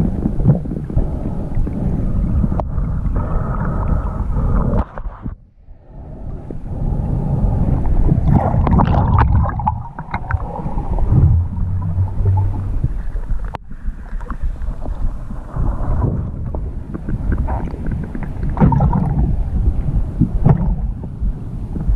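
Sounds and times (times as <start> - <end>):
muffled underwater rumble: 0.0 - 21.9.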